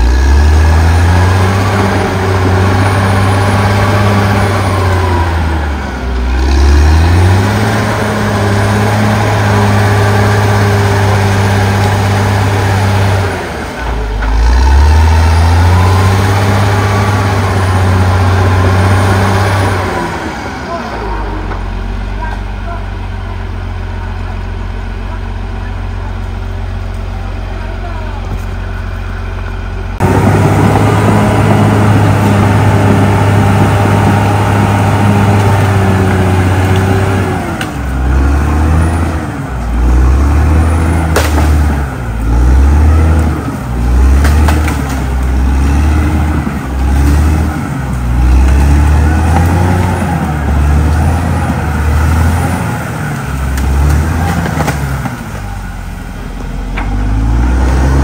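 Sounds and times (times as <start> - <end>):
bulldozer diesel engine: 0.0 - 58.0
sharp crack: 40.8 - 42.4, 43.1 - 45.4, 50.8 - 55.6.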